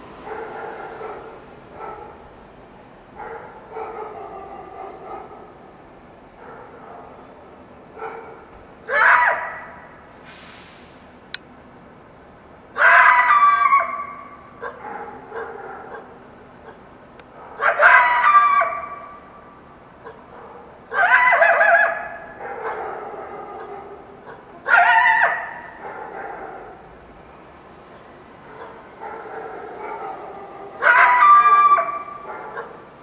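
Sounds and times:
coyote yelping: 8.9 - 9.7, 12.8 - 14.8, 17.6 - 19.2, 20.9 - 26.7, 30.8 - 32.8.

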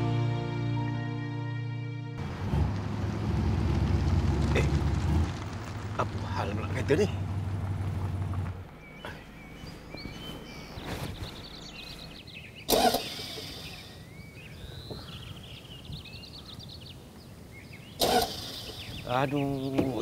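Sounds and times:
small birds chirping: 8.6 - 20.0.

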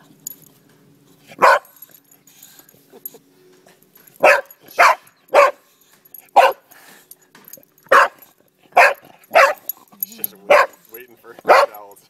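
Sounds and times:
dog barking: 1.4 - 1.7, 4.2 - 5.6, 6.4 - 6.6, 7.9 - 9.7, 10.5 - 10.8, 11.4 - 11.8.

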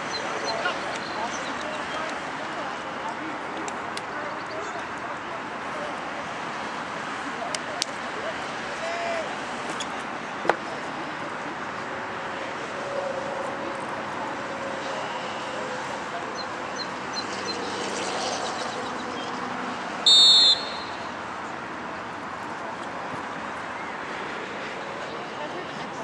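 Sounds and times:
murmur of distant voices: 0.0 - 26.0
referee's whistle blast: 20.0 - 21.1.

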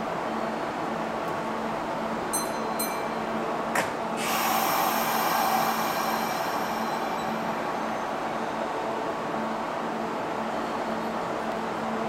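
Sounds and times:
train equipment humming: 0.0 - 12.0
compressed air hissing: 4.2 - 7.9.

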